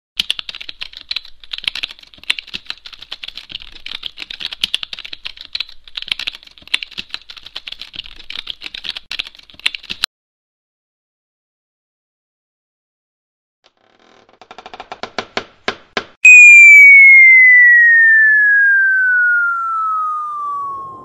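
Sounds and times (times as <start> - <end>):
fast keyboard typing: 0.2 - 10.1.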